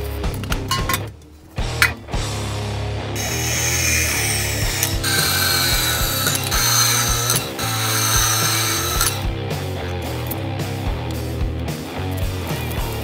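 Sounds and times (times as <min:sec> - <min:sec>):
rock music: 0:00.0 - 0:13.0
band saw cutting steel: 0:00.7 - 0:02.4, 0:03.1 - 0:09.5.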